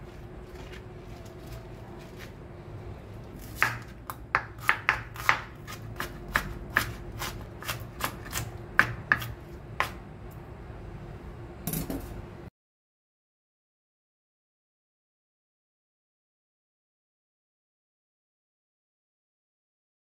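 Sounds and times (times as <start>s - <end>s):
knife chopping on cutting board: 3.4s - 10.0s.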